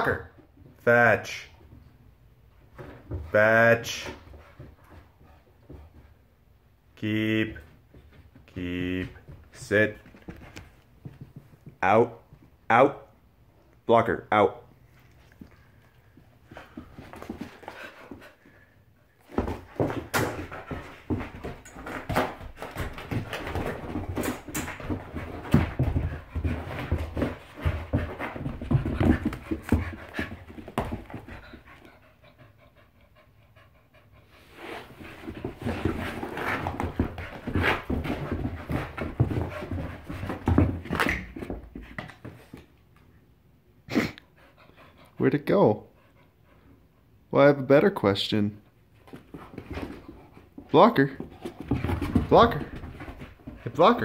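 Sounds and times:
knocks and scuffles: 0:07.6 - 0:12.6, 0:15.4 - 0:18.6, 0:19.2 - 0:31.9, 0:34.6 - 0:42.8, 0:49.0 - 0:54.0
dog panting hard: 0:16.5 - 0:40.7, 0:44.2 - 0:45.2, 0:45.8 - 0:47.2.

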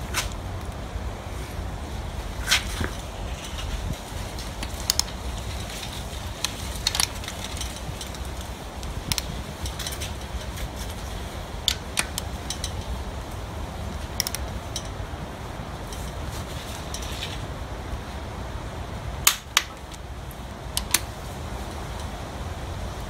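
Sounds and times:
steady low rumble: 0:00.0 - 0:23.0
torque wrench clicks: 0:04.6 - 0:05.2, 0:06.4 - 0:10.0, 0:11.7 - 0:13.0, 0:14.1 - 0:14.9, 0:20.8 - 0:21.1.

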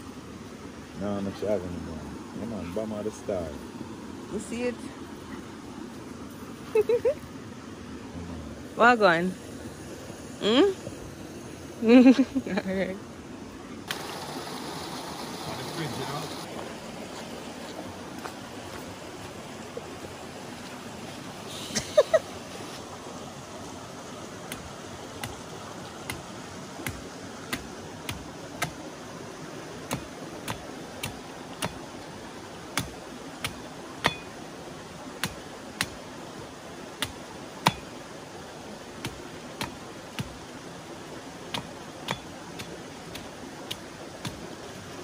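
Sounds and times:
machete chopping coconut husk: 0:24.5 - 0:25.4, 0:26.0 - 0:28.9, 0:29.8 - 0:31.9, 0:32.7 - 0:34.4, 0:35.2 - 0:36.0, 0:36.9 - 0:38.0, 0:39.0 - 0:40.5, 0:41.5 - 0:44.5.

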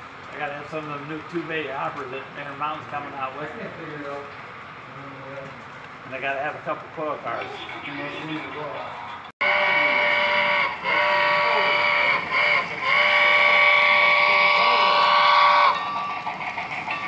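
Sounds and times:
steam whistle from small speaker: 0:09.4 - 0:15.8.

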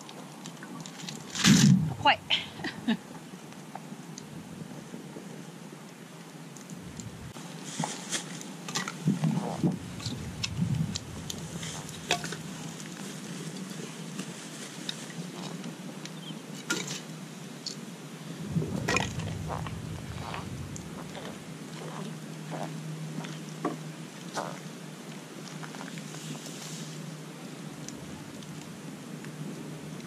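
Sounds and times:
campfire crackling and popping: 0:06.6 - 0:07.4, 0:08.9 - 0:12.9, 0:18.4 - 0:21.7.

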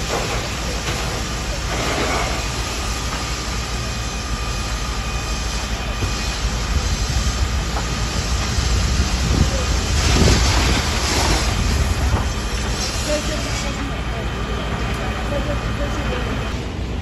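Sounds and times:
faint steady whine: 0:00.0 - 0:17.0
fire and water jets roaring: 0:00.0 - 0:17.0
wind buffeting microphone: 0:06.1 - 0:13.6.

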